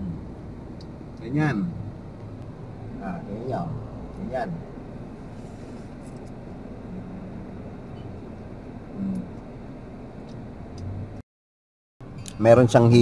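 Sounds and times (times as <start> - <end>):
car engine and fan hum: 0.0 - 11.2
person humming mm: 8.9 - 9.3.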